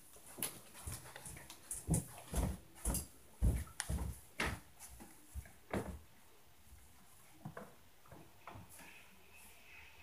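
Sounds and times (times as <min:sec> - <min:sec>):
footsteps thudding through ceiling: 0:00.2 - 0:06.1.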